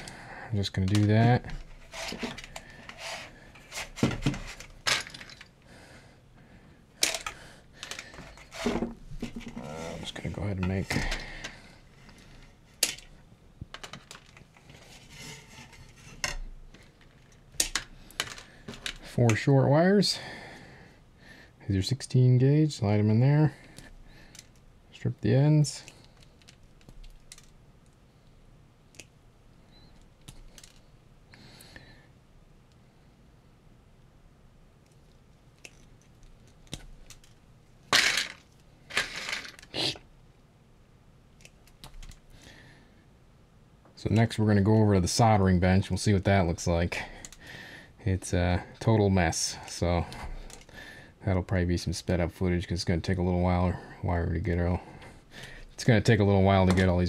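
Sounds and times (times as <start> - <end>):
wire strippers clicking and snipping: 0.8 - 5.5, 16.2 - 19.4, 25.9 - 28.0, 34.8 - 37.4, 41.3 - 42.3, 47.2 - 47.4.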